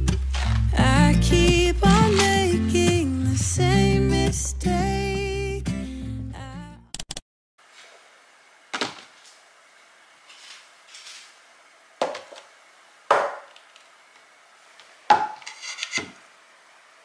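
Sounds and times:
sharp knocks on tabletop: 13.1 - 13.5.

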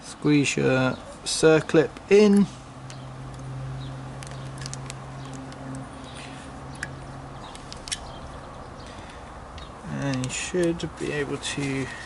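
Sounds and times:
metal clip clicking and scraping: 6.7 - 8.2, 10.0 - 10.8.

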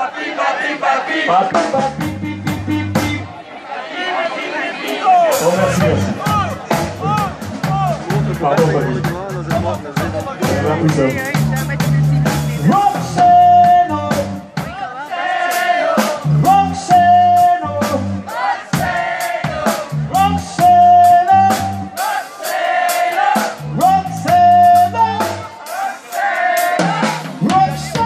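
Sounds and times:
drum kit beating: 1.2 - 3.4, 4.8 - 28.0
bass line: 1.6 - 3.4, 5.4 - 14.8, 16.0 - 22.0, 23.4 - 25.6, 27.0 - 28.0.

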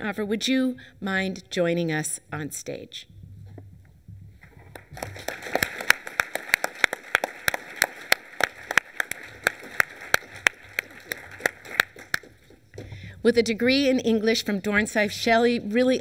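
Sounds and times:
sharp claps close to microphone: 4.5 - 12.9
audience applauding: 4.7 - 12.6.

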